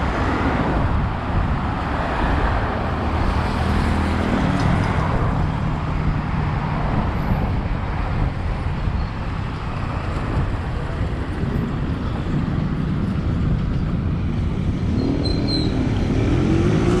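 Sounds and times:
road traffic rumble: 0.0 - 17.0
vehicle engine revving: 14.8 - 17.0.

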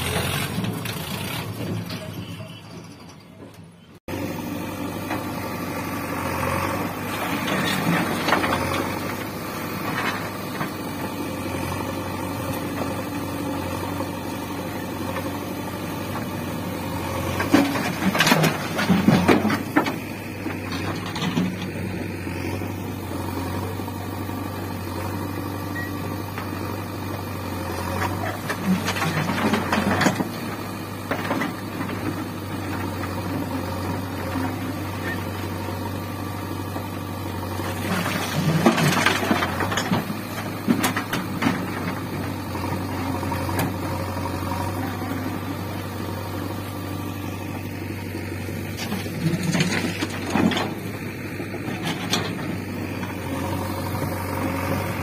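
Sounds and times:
diesel engine running: 0.0 - 55.0
stones clattering into trolley: 28.0 - 30.6, 37.7 - 42.2.

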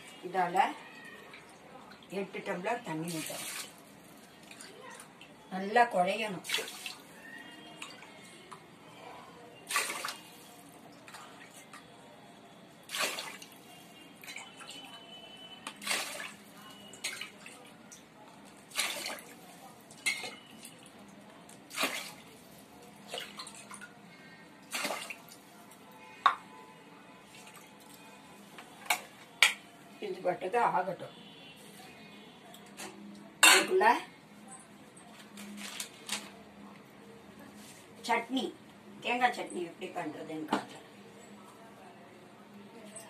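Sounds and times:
water splashing into a pot: 3.1 - 3.8, 6.4 - 8.0, 9.6 - 11.6, 12.8 - 13.6, 15.6 - 17.7, 18.5 - 20.8, 21.7 - 22.3, 24.6 - 25.4.

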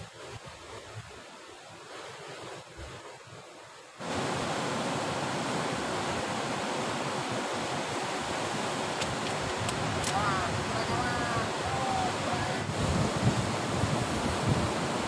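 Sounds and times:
surf breaking on rocks: 4.0 - 15.0.

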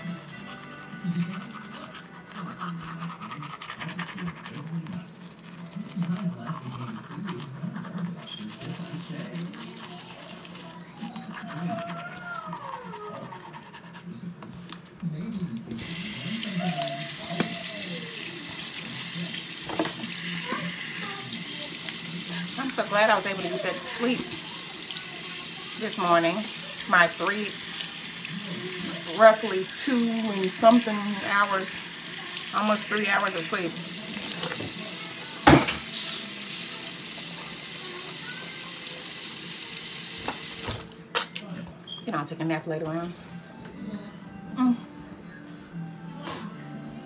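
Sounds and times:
water running from a tap: 15.8 - 40.9
tap running into sink: 19.6 - 20.1, 40.2 - 40.9.

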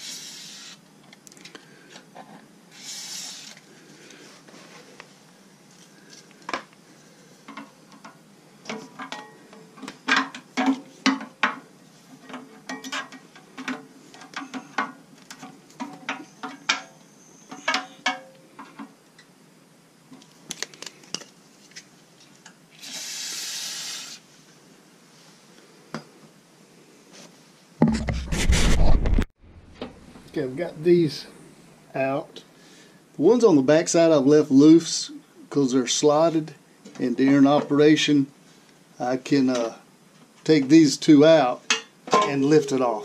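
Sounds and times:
short steady hiss: 0.0 - 0.9, 2.7 - 5.0, 22.7 - 25.6.

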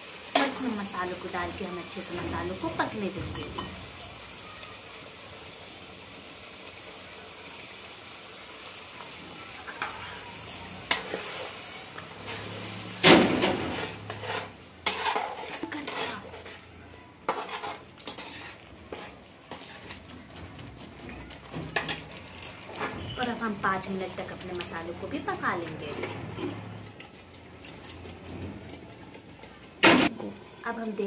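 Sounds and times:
spices sizzling: 0.0 - 31.0
metal spoon scraping a pan: 8.8 - 28.8
loud metal clank: 13.0 - 13.8.

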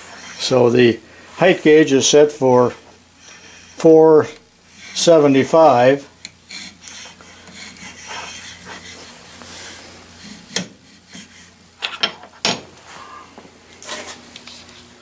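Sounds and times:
scriber scratching steel: 4.7 - 11.6.

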